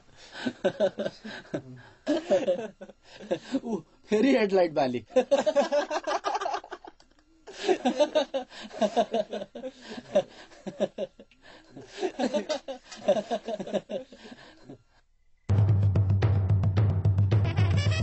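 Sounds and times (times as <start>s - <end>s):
men laughing: 0.3s - 3.8s, 5.1s - 14.8s.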